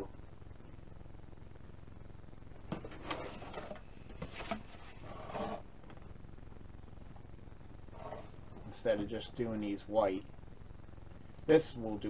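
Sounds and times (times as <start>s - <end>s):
faint steady hum: 0.0s - 12.0s
cardboard box lid scraping: 3.0s - 5.6s, 7.9s - 8.4s.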